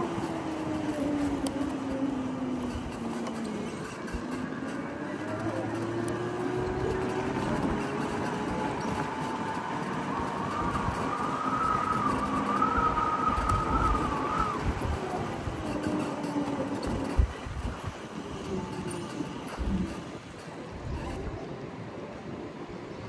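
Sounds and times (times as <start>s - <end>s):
wind and road noise: 0.0s - 23.0s.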